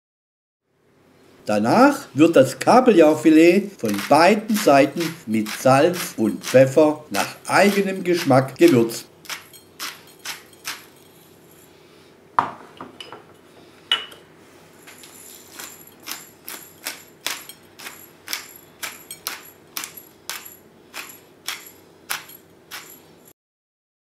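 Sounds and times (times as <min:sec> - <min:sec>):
pepper mill grinding: 0:03.1 - 0:11.7, 0:14.8 - 0:23.3.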